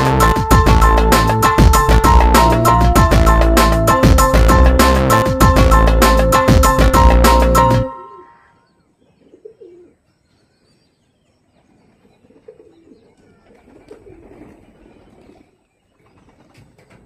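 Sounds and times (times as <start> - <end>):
pigeons cooing: 9.0 - 10.0, 11.9 - 17.0.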